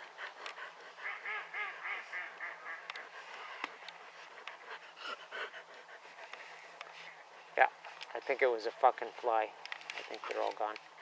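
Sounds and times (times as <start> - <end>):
ducks quacking: 1.0 - 3.8.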